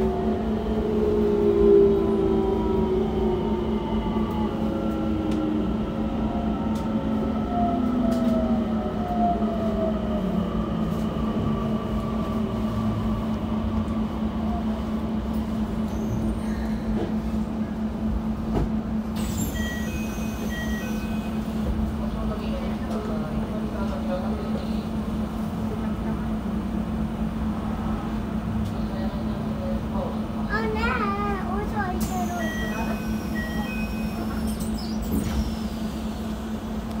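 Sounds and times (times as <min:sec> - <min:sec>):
low hum and rail noise: 0:00.0 - 0:37.0
train inverter whine: 0:00.0 - 0:37.0.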